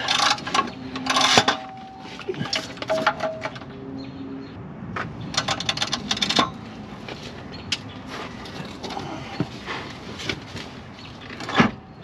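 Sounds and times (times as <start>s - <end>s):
light metal clinks and knocks: 0.0s - 3.8s.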